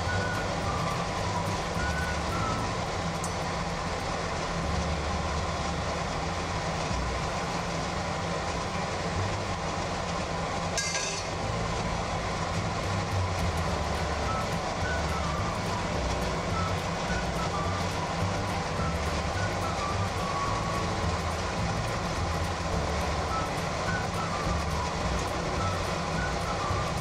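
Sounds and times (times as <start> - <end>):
deep-frying sizzle in hot oil: 0.0 - 27.0
low rumble: 11.3 - 27.0.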